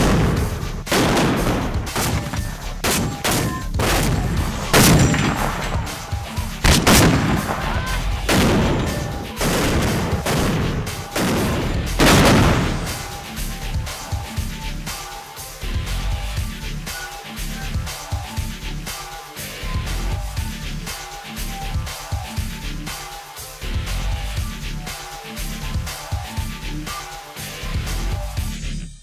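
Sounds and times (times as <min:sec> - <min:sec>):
mortar firing blasts: 0:00.0 - 0:13.3
rumbling echo: 0:00.0 - 0:13.9.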